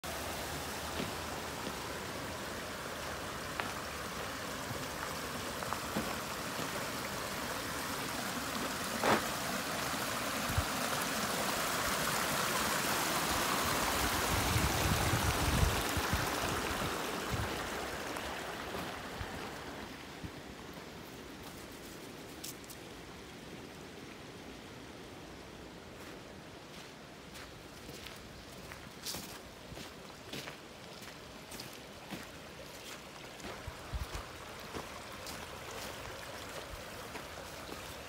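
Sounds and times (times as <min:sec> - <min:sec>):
brook babbling over rocks: 0:00.0 - 0:24.3, 0:27.3 - 0:38.0.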